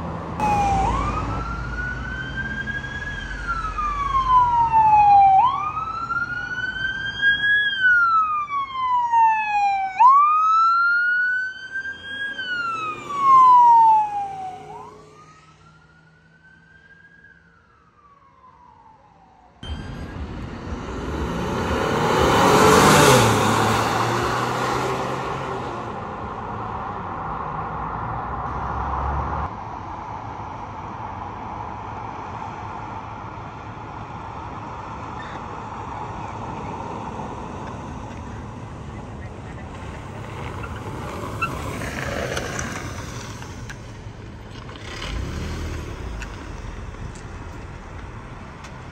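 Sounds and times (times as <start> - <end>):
traffic noise: 0.0 - 48.9
police siren wailing: 0.4 - 25.7
vehicle passing close by: 19.6 - 29.5, 39.4 - 48.9.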